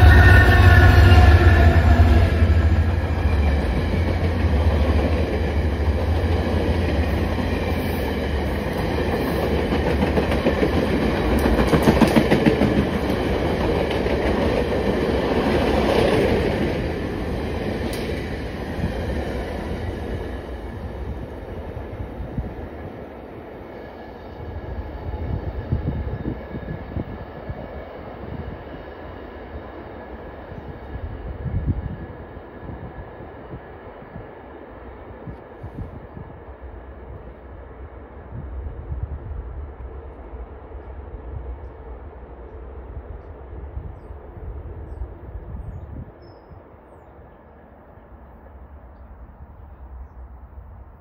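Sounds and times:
diesel locomotive hum: 0.0s - 51.0s
rumble of passing train cars: 0.0s - 51.0s
train wheels clacking over rail joints: 8.7s - 16.6s.

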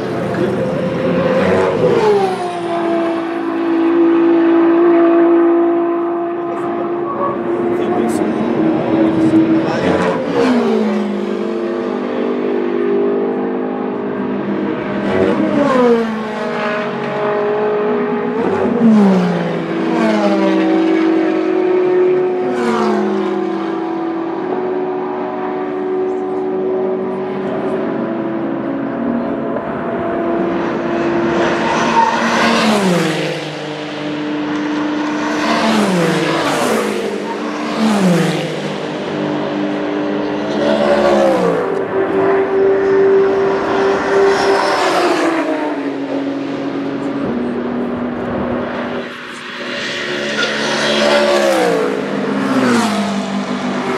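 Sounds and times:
engines running steadily: 0.0s - 53.9s
race cars passing at speed: 0.0s - 53.9s.

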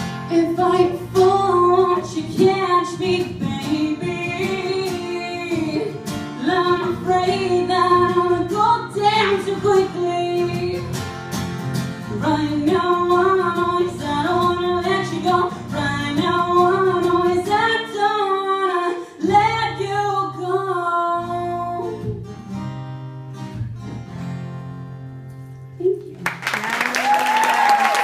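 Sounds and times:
acoustic guitar: 0.0s - 26.7s
woman singing slow song: 0.3s - 11.0s, 12.1s - 22.2s.

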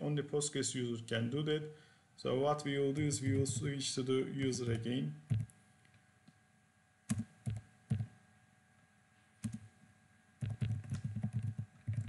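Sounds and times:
computer keyboard typing: 5.3s - 5.5s, 7.1s - 8.1s, 9.4s - 9.7s, 10.4s - 12.0s.

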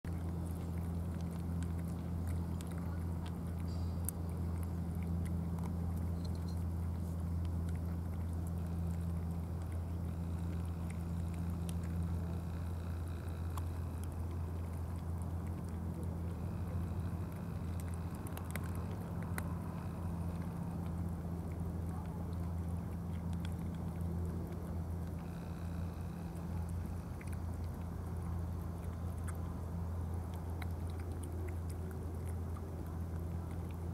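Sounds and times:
cats chewing wet food: 0.1s - 33.9s
low hum: 0.1s - 33.9s.

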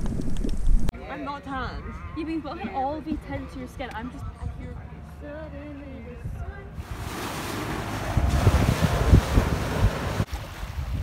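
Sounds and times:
wind gusting across microphone: 6.2s - 11.0s
sea water washing: 6.8s - 11.0s.

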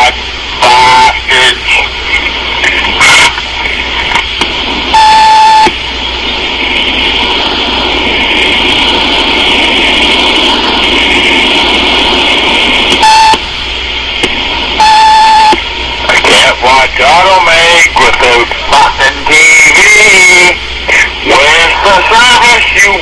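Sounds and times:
phone line hiss: 0.0s - 3.4s, 4.8s - 13.5s, 14.6s - 16.8s
answering machine beep: 4.9s - 5.7s, 13.0s - 13.4s, 14.8s - 15.6s.

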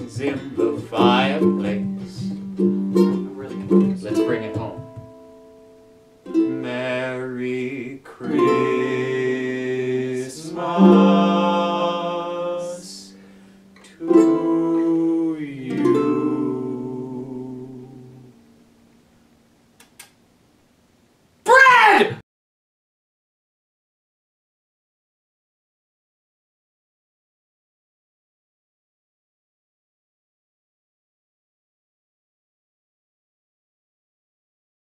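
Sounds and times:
voices singing long notes: 0.0s - 2.4s, 6.3s - 18.7s
ukulele strumming chords: 0.0s - 19.0s.

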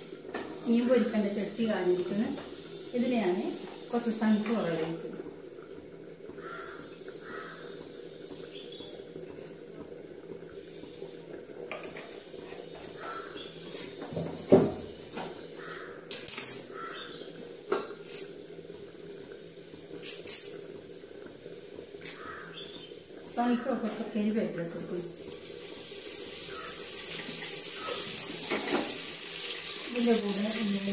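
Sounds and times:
utensils and pots clinking: 27.1s - 30.9s.

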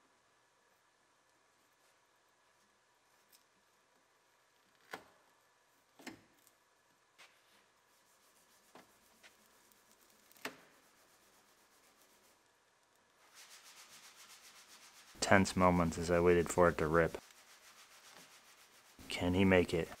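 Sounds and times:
fast rhythmic rubbing: 7.9s - 12.5s, 13.2s - 20.0s.

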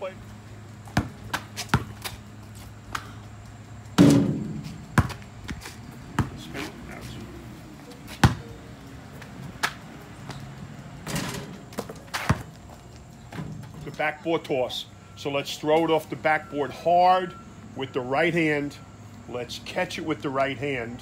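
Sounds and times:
basketball bouncing on asphalt: 0.8s - 3.2s, 3.9s - 6.6s, 8.0s - 10.4s, 11.6s - 13.4s.

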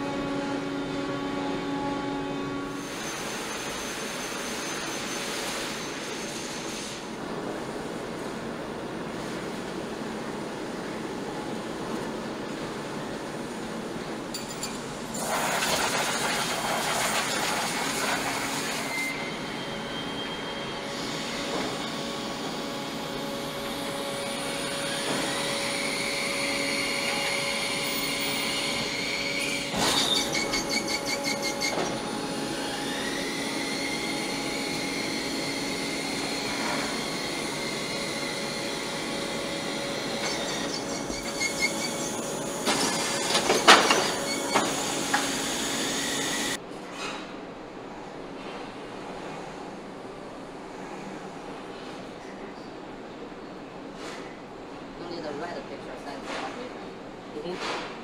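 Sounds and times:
factory machinery hum: 0.0s - 58.0s
motor whine: 18.1s - 42.6s.

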